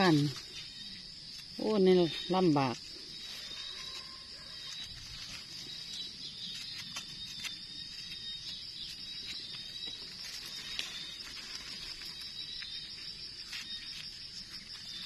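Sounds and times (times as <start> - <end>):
insects chirping: 0.0 - 15.0
knife trimming mushroom stem: 6.3 - 11.0.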